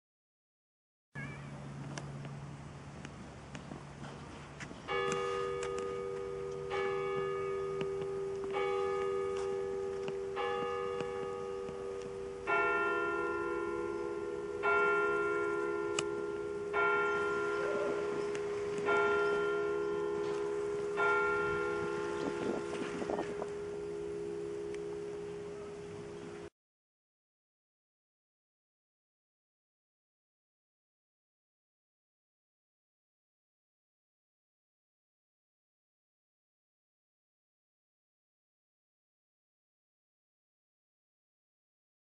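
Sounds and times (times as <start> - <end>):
church bells ringing: 4.8 - 26.5.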